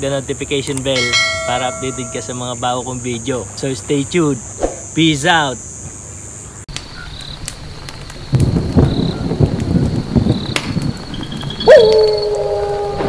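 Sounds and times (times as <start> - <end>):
loud hit with ringing tone: 1.0 - 2.6
low rumble with crackling: 6.7 - 13.0.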